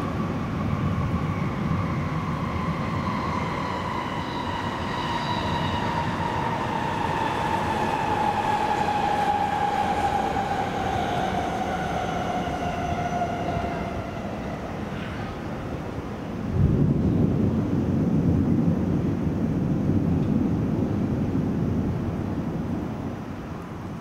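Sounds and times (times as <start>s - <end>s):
passing vehicle whine: 0.0s - 16.5s.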